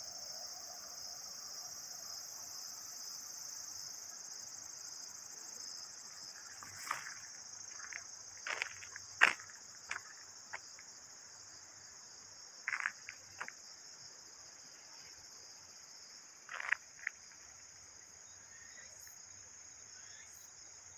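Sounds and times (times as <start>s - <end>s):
insects trilling: 0.0s - 20.9s.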